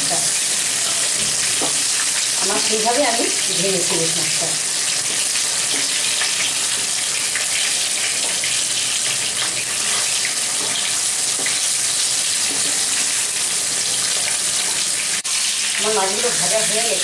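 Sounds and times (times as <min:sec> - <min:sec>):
fish sizzling in oil: 0:00.0 - 0:17.0
wooden spatula in pan: 0:04.9 - 0:14.9.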